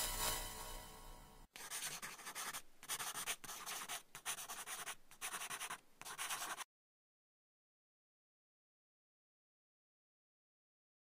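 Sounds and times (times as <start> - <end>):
pen scratching on paper: 1.6 - 6.7.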